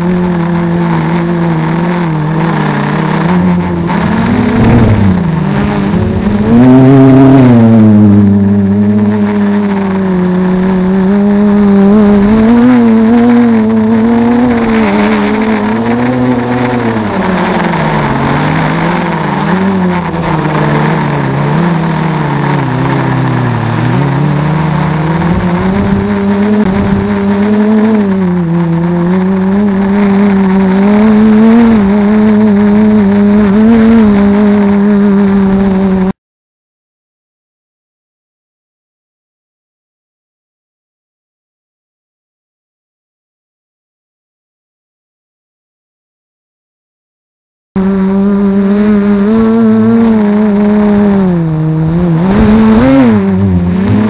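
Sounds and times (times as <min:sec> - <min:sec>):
drone motors whining: 0:00.0 - 0:36.1, 0:47.8 - 0:54.0
wind noise on microphone: 0:02.5 - 0:08.2, 0:11.6 - 0:32.0.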